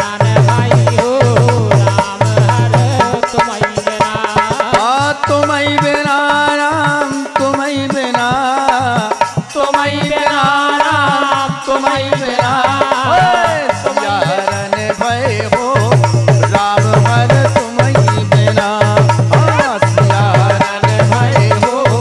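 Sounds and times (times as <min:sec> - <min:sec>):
steady drum beat: 0:00.0 - 0:22.0.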